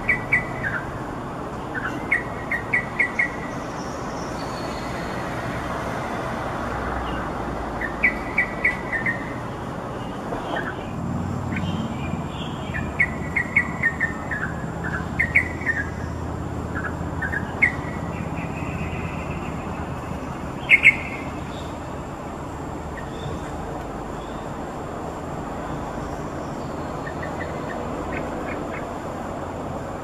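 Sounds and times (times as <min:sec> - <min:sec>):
bird chirping and calling: 0:00.0 - 0:01.0, 0:01.6 - 0:05.2, 0:07.8 - 0:09.4, 0:11.5 - 0:21.9, 0:22.9 - 0:23.6, 0:26.0 - 0:29.0.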